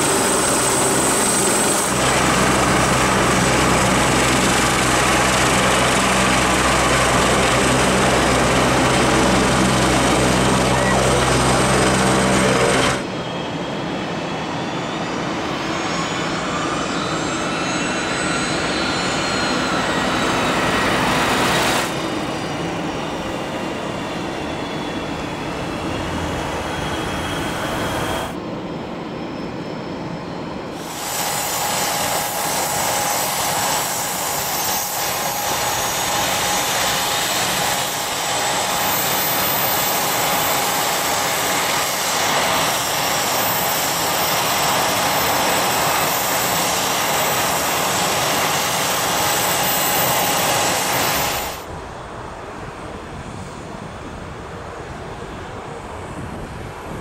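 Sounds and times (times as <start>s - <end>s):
jet engines running: 0.0s - 57.0s.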